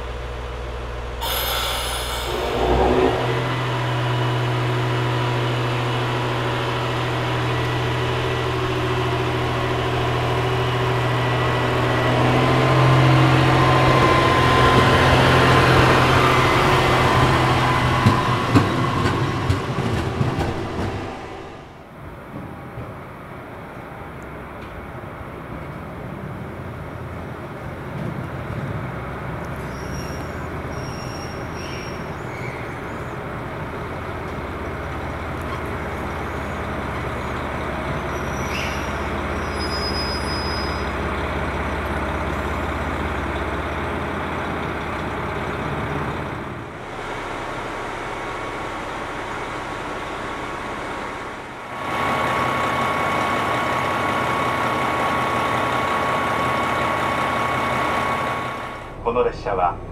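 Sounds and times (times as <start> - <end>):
diesel engine rumble: 0.0 - 59.9
engine idling with high whine: 29.0 - 59.9.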